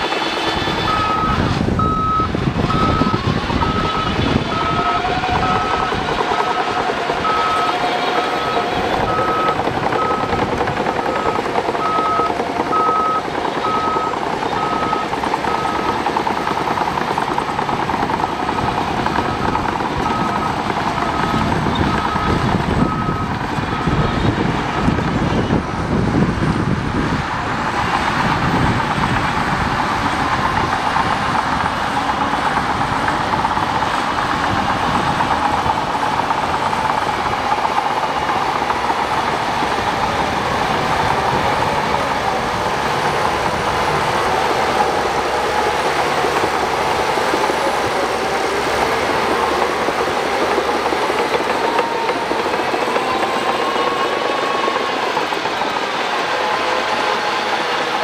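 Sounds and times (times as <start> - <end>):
bulldozer diesel engine running: 0.0 - 58.0
steel tracks clanking: 0.0 - 58.0.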